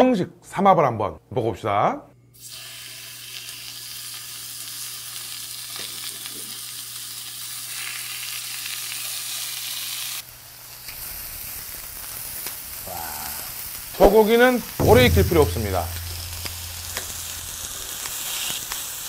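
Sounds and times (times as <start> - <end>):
meat sizzling on grill pan: 2.4 - 14.7.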